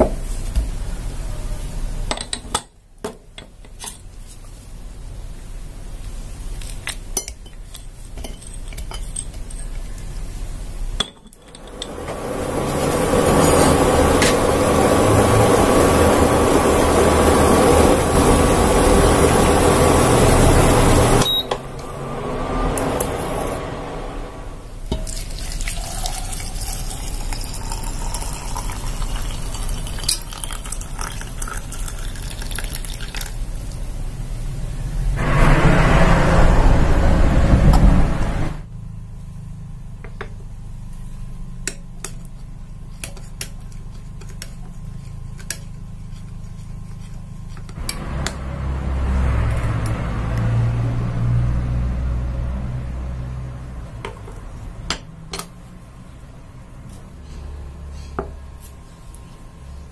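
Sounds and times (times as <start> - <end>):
water boiling in a pot: 4.2 - 21.5, 24.7 - 34.8
water pouring into teapot: 24.9 - 33.8.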